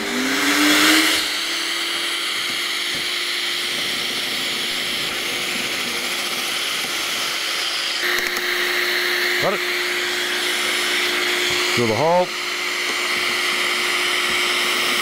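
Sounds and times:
dust extractor motor running: 0.0s - 15.0s.

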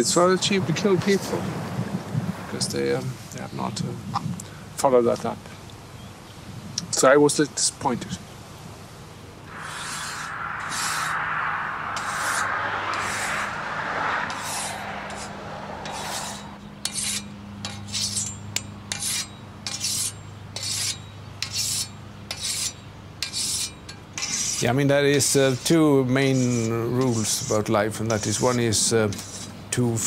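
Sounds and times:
scythe blade being sharpened: 16.9s - 24.6s.

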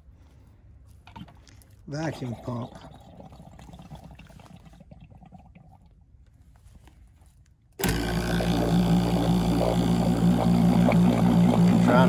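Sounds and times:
vacuum pump humming: 7.8s - 12.0s.

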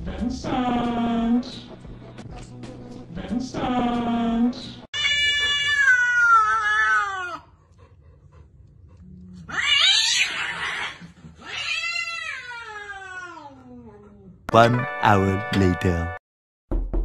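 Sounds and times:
cat screeching: 5.0s - 7.4s, 9.5s - 13.7s
cat yowling: 5.0s - 7.5s, 9.5s - 14.1s.

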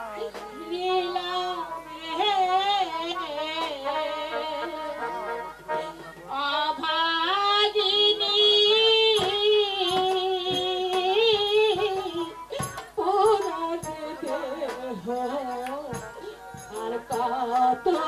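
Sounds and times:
woman singing into a microphone: 0.0s - 18.0s.

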